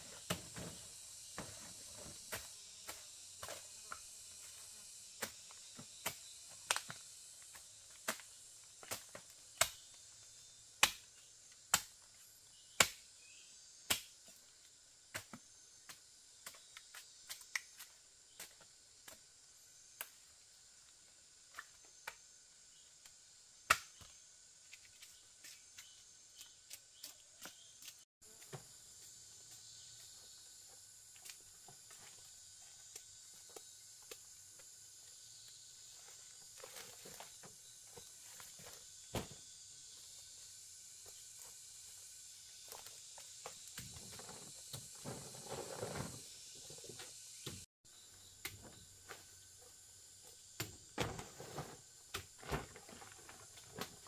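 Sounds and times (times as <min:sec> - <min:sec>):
high insect drone: 0:00.0 - 0:54.0
sharp snaps and knocks: 0:08.0 - 0:09.9, 0:10.8 - 0:11.1, 0:11.7 - 0:12.0, 0:12.8 - 0:13.0, 0:13.9 - 0:14.1, 0:23.0 - 0:24.1.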